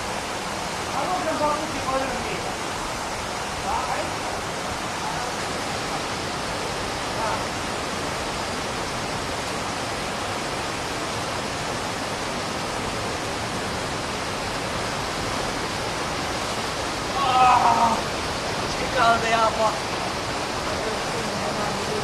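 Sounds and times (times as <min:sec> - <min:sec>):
fast-flowing river water: 0:00.0 - 0:22.0.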